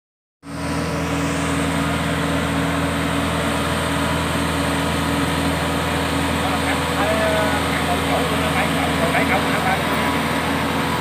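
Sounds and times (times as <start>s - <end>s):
diesel engine running: 0.4s - 11.0s.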